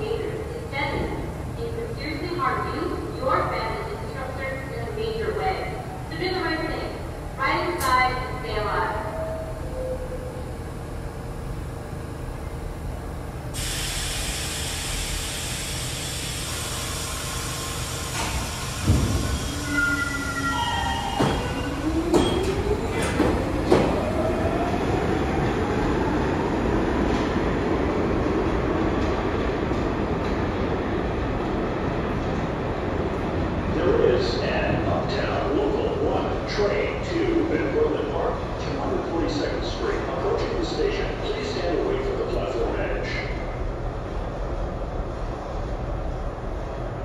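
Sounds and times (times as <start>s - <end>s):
subway train rumbling: 0.0s - 47.0s
wheel squeals: 19.4s - 22.6s
clanks over rails: 21.0s - 24.1s.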